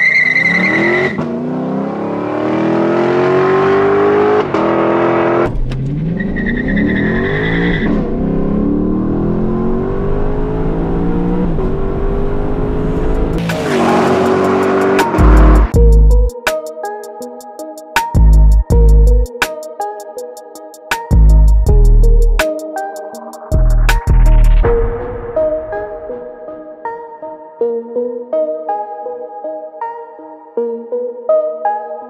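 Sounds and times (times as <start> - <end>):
tyre squeal: 0.0 - 1.2, 6.2 - 8.0
car engine accelerating hard: 0.4 - 15.7.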